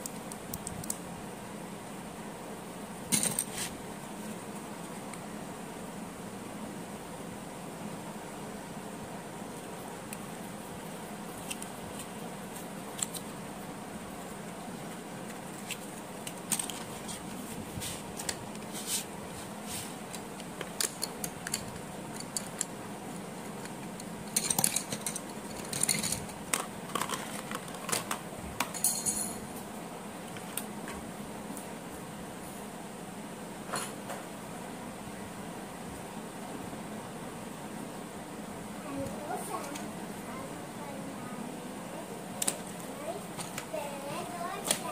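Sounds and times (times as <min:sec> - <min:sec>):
steady background hum: 0:00.0 - 0:44.9
wooden pencils clicking together: 0:20.1 - 0:22.7.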